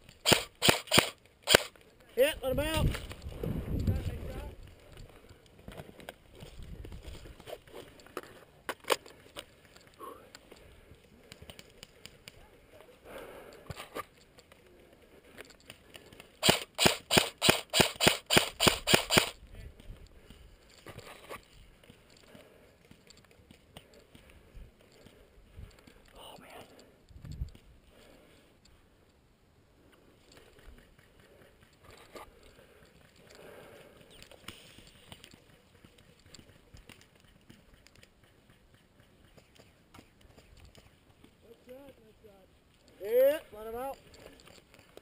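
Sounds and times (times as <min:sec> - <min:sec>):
airsoft rifle shots: 0:00.2 - 0:01.7, 0:16.4 - 0:19.4
soft ticks: 0:28.6 - 0:29.2.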